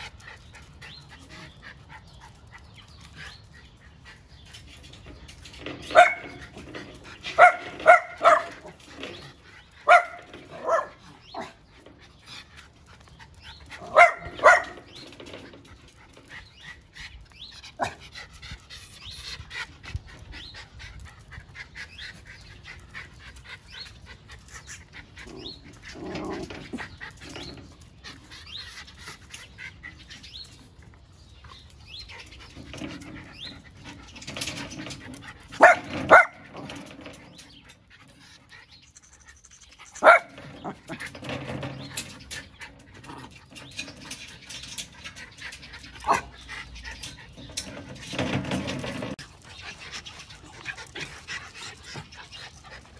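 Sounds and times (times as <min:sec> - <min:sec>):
small dog barking: 0:07.4 - 0:08.5.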